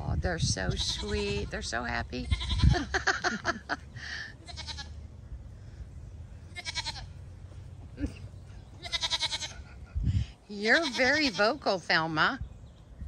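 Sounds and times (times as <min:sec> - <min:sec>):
goats bleating: 0:02.2 - 0:03.0, 0:04.4 - 0:05.0, 0:06.5 - 0:07.2, 0:08.8 - 0:09.9, 0:10.6 - 0:11.4.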